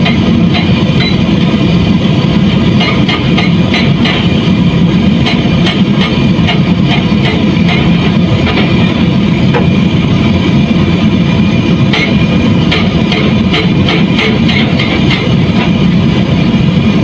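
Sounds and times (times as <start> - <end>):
heavy engine running: 0.0 - 17.0.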